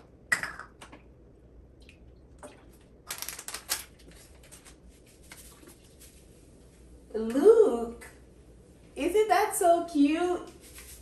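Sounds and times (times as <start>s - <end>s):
packet crackling and rustling: 3.1s - 5.5s.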